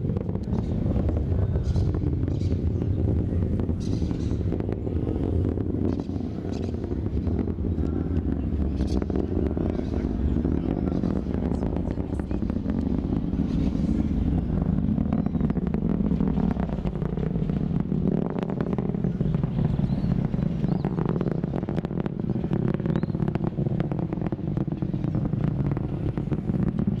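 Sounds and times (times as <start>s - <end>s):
rocket rumble with crackling: 0.0s - 27.0s.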